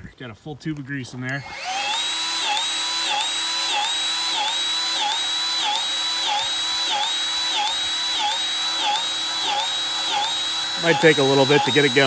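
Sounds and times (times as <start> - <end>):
grease gun motor whining: 1.3 - 12.0.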